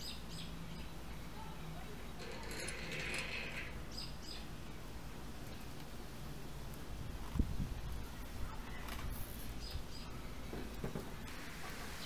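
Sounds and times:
small birds chirping: 0.0s - 2.3s, 3.8s - 4.8s, 7.4s - 11.0s.

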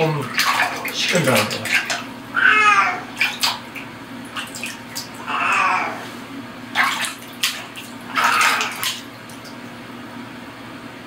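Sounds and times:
water splashing in basin: 0.0s - 2.2s, 3.1s - 5.3s, 6.7s - 9.6s.

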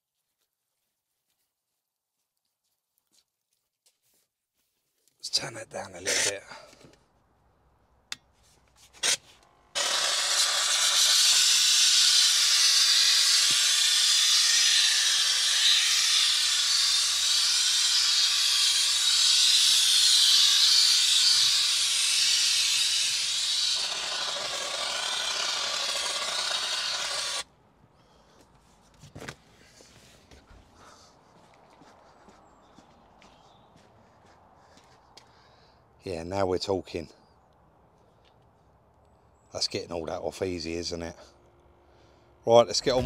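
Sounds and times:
steam cleaner hissing: 9.8s - 27.4s.

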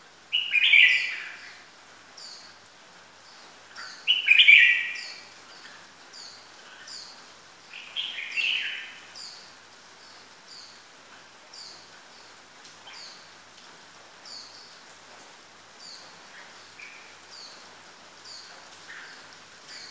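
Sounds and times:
bird warbling song: 0.3s - 1.6s, 3.3s - 10.8s, 15.8s - 19.9s.

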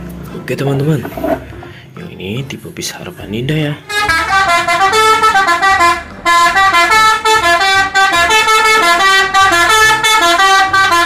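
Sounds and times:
musical air horn tune: 3.9s - 11.0s.

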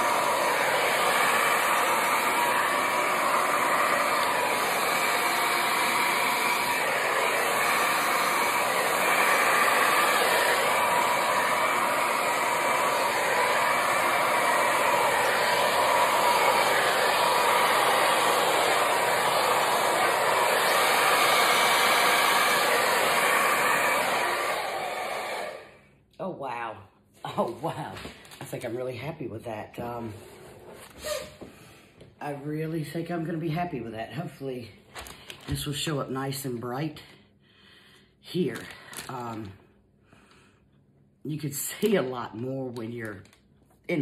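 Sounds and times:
hair dryer blowing: 0.0s - 25.9s, 31.0s - 33.4s.

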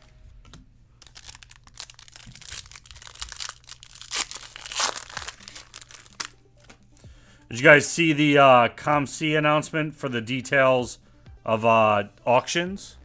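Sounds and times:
foil pack tearing and crinkling: 1.0s - 6.7s.

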